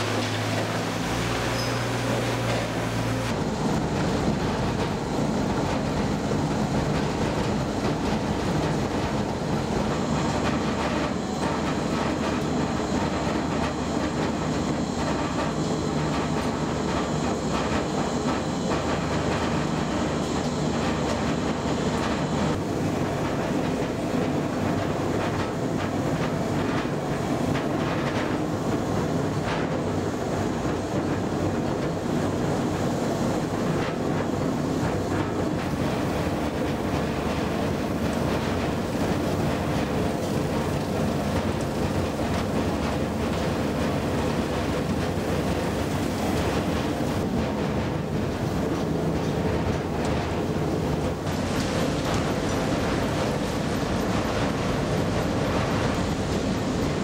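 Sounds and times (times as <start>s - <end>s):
industrial shredder grinding waste: 0.0s - 5.5s, 34.6s - 57.0s.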